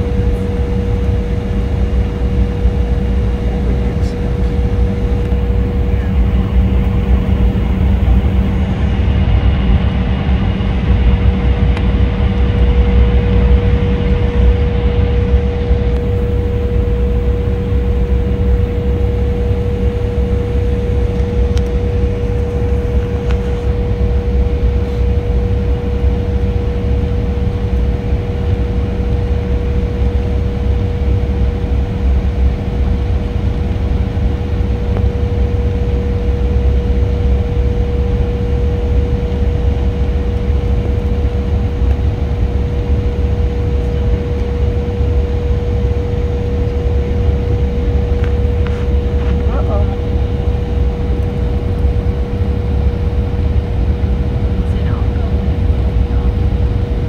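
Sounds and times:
jet cabin low rumble: 0.0s - 57.0s
steady hum-like tone: 0.0s - 57.0s.

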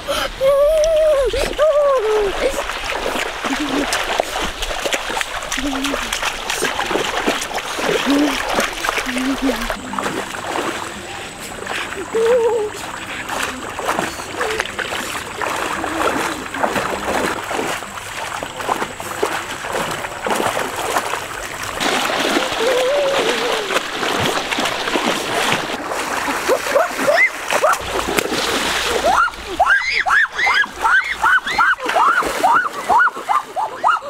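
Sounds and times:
water splashing: 0.0s - 34.0s
person calling out: 22.6s - 23.8s.

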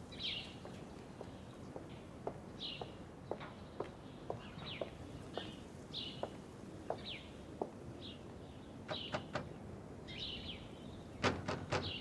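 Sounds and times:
small birds chirping: 0.0s - 12.0s
footsteps on hard ground: 0.2s - 7.8s.

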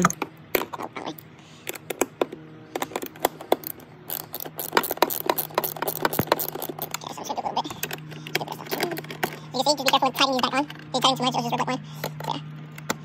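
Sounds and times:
hand ratchet clicking: 3.1s - 10.0s.

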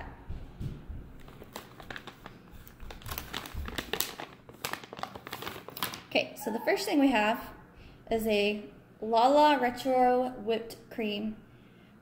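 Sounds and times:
packaging crinkling and rustling: 1.2s - 6.2s.

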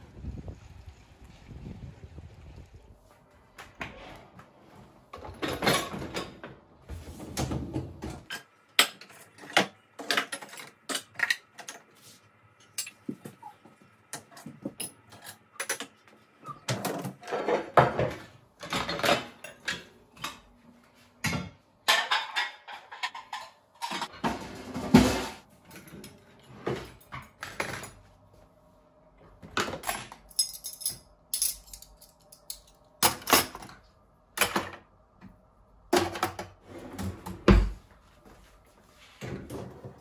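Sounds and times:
dishes and utensils clinking: 8.2s - 11.9s, 12.6s - 13.5s, 21.2s - 28.1s.

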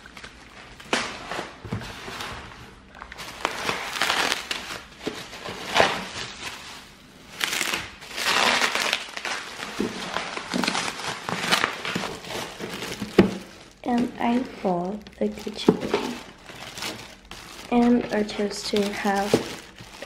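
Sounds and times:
bubble wrap crinkling: 0.0s - 20.0s.

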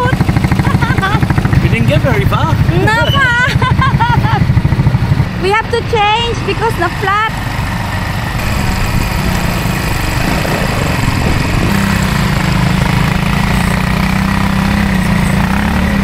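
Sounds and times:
buggy engine running: 0.0s - 16.0s.

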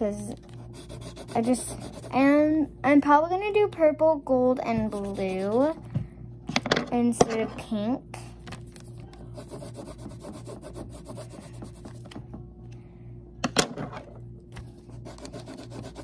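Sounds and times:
colored pencil scratching on paper: 0.4s - 2.2s, 4.8s - 5.8s, 8.8s - 12.2s, 14.9s - 16.0s.

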